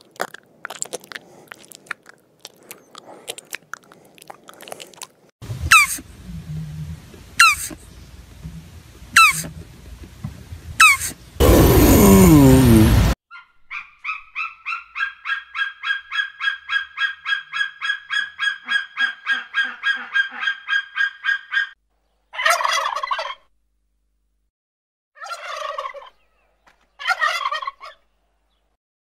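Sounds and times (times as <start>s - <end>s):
turkeys gobbling: 5.7s - 6.6s, 7.4s - 7.8s, 9.2s - 9.5s, 14.4s - 21.7s, 22.4s - 23.4s, 25.2s - 26.2s, 27.0s - 28.0s.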